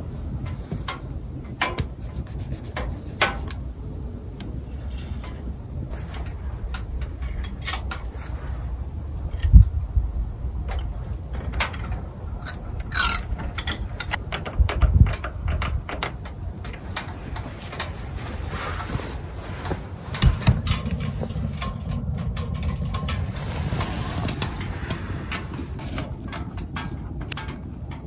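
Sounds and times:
metal parts clicking and knocking: 5.2s - 8.2s, 10.7s - 18.0s, 20.1s - 28.0s.

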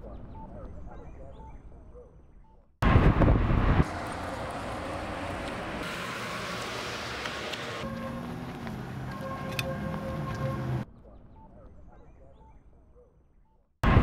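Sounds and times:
wind: 0.0s - 14.0s
passing vehicles: 2.8s - 10.9s.

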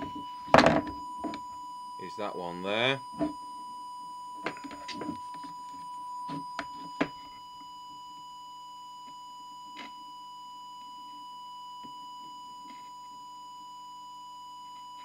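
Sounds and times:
steady test tone: 0.0s - 9.0s.

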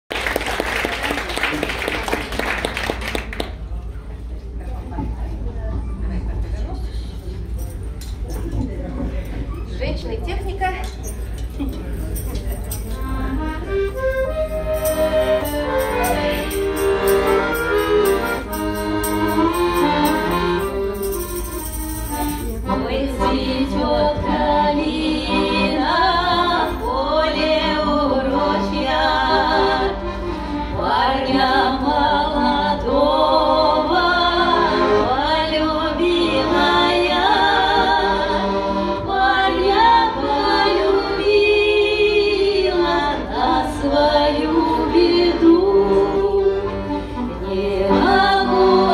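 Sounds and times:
accordion playing: 12.8s - 48.9s
tambourine jingling: 13.9s - 22.7s
women singing with vibrato: 22.7s - 48.9s.

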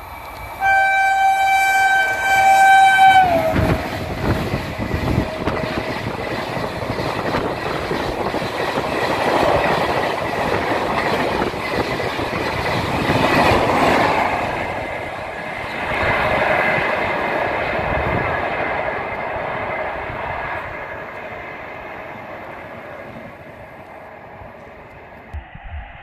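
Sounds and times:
train horn with falling pitch: 0.6s - 4.2s.

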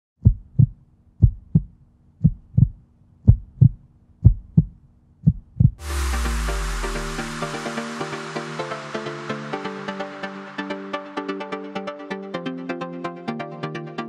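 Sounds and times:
heartbeat thumps: 0.2s - 7.0s
deep bass boom: 5.8s - 8.4s
electronic dance music: 5.8s - 14.0s.

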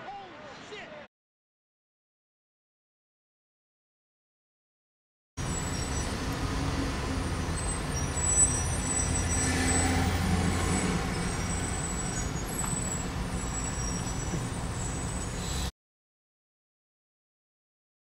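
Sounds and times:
low engine rumble: 5.4s - 15.7s
trucks nearby: 5.4s - 15.7s.

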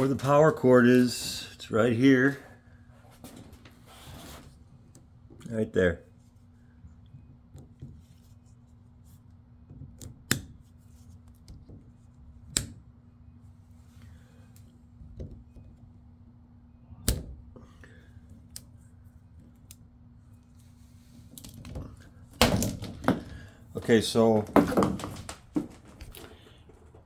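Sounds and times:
faint steady hum: 0.0s - 27.0s
cables being handled: 3.0s - 12.8s, 18.1s - 27.0s.

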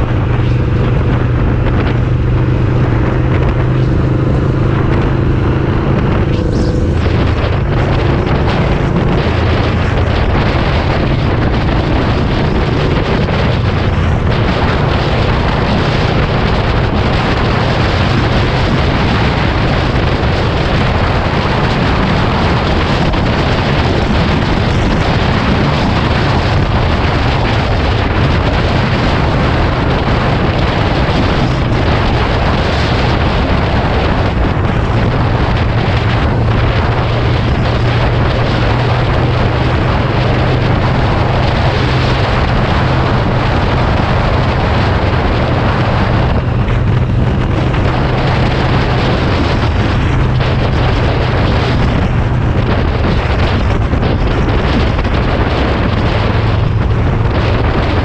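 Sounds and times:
motorcycle engine drone: 0.0s - 58.0s
wind buffeting microphone: 0.0s - 58.0s.

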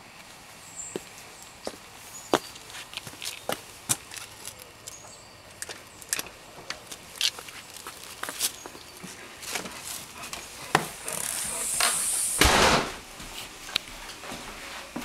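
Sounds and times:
door hiss: 10.6s - 13.2s
door banging shut: 11.8s - 13.1s.

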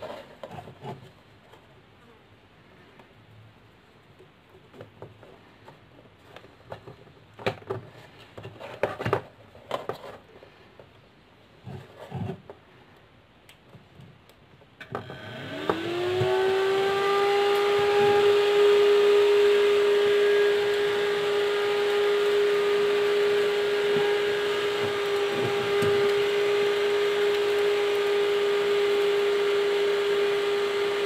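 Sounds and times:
wires and connectors rustling: 13.6s - 29.2s
cooling fan whining: 14.8s - 31.0s.

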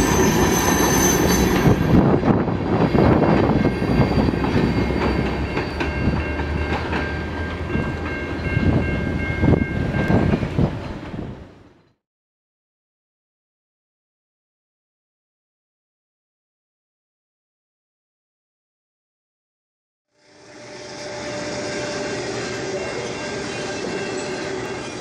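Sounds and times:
train wheels clacking on rails: 0.0s - 11.2s, 21.4s - 25.0s.

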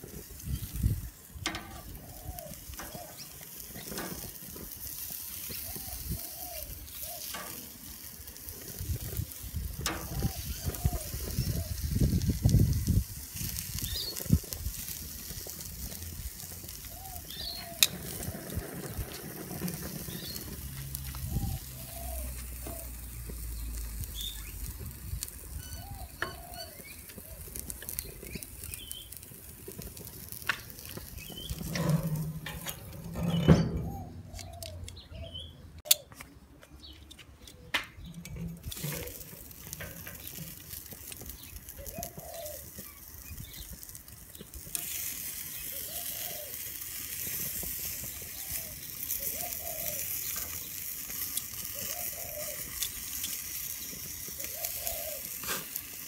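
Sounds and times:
birds chirping: 0.0s - 12.3s, 13.5s - 56.0s
sausages sizzling on a grill: 0.0s - 35.4s, 38.0s - 56.0s
metal tongs clicking on grate: 1.4s - 1.9s, 3.8s - 4.4s, 7.2s - 7.7s, 35.8s - 36.2s.

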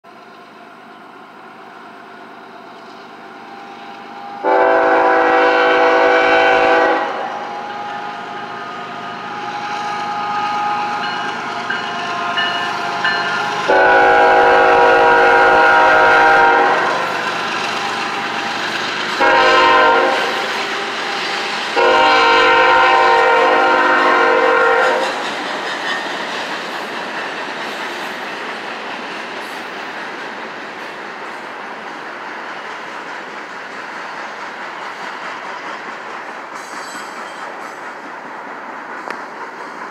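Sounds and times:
train rumble: 0.0s - 39.9s
locomotive horn: 4.1s - 17.2s, 19.2s - 25.2s
wheels clicking over rail joints: 24.9s - 39.9s.

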